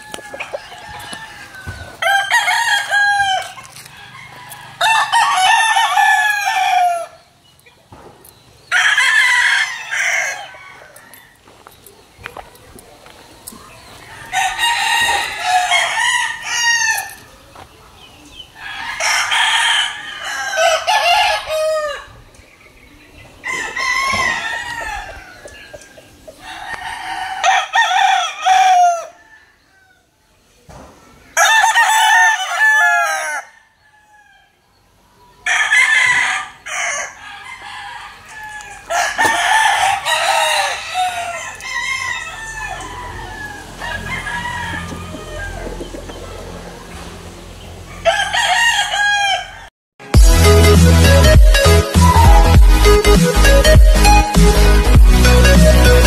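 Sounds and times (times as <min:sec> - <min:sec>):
rooster crowing: 0:00.0 - 0:07.3, 0:08.7 - 0:11.4, 0:14.0 - 0:17.3, 0:18.6 - 0:22.2, 0:23.4 - 0:30.1, 0:31.4 - 0:34.6, 0:35.4 - 0:45.9, 0:47.9 - 0:49.7.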